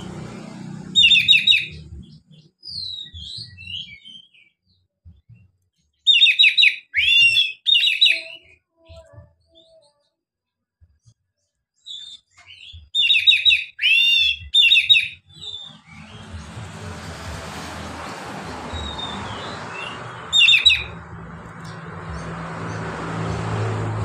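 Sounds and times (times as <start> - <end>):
songbird singing in short phrases: 1.0 - 10.1, 11.8 - 16.3.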